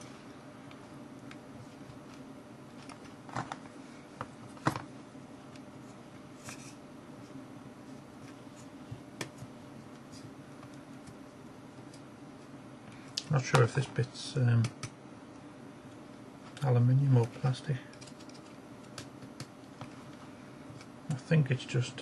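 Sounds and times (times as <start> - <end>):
faint low hum: 0.0 - 22.0
small clicks and taps: 14.6 - 15.0.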